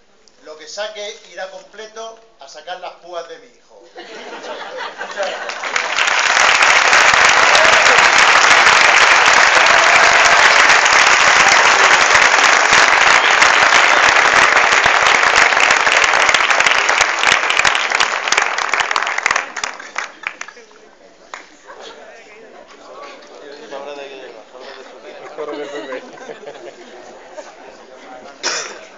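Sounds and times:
audience applauding: 4.8 - 21.5.

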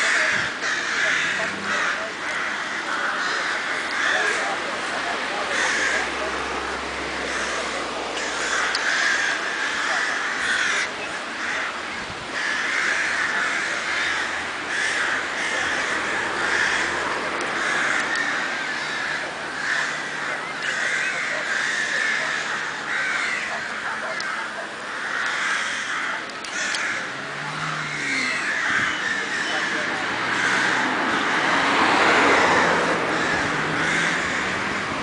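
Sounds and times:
crows cawing: 0.0 - 35.0.

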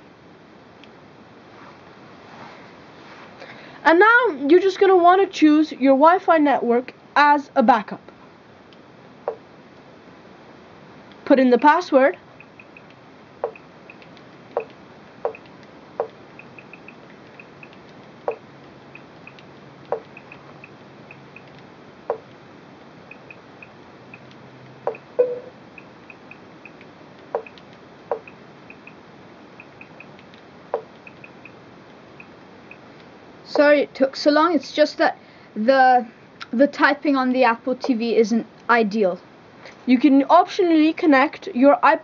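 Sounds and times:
sharp interface clicks: 12.4 - 18.4, 24.9 - 25.5, 27.4 - 29.0.

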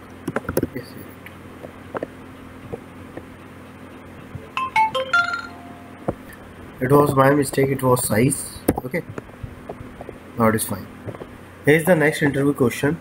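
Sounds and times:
low hum: 0.0 - 11.6
electronic tone melody: 4.5 - 6.0.

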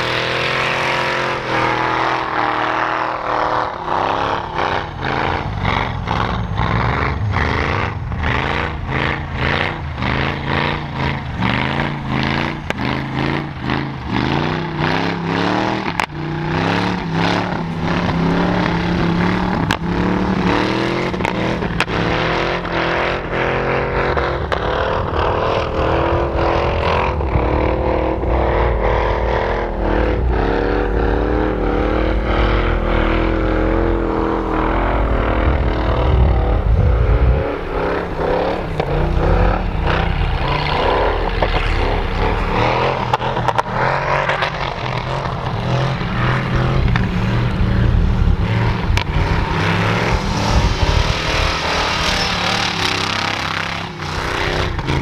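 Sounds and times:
engine revving hard: 0.0 - 55.0.

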